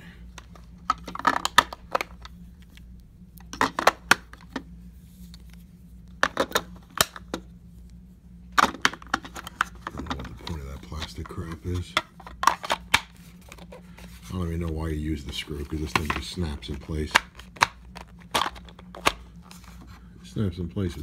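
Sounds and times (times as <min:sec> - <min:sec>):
batteries clicking into compartment: 0:15.8 - 0:19.2.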